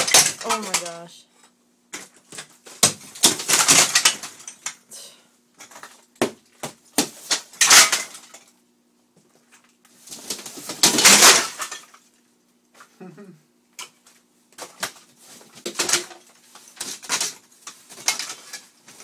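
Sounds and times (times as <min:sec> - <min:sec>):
tile pieces crashing and clattering: 0:00.0 - 0:01.0, 0:02.0 - 0:04.8, 0:07.0 - 0:08.5, 0:10.6 - 0:12.0, 0:16.8 - 0:19.0.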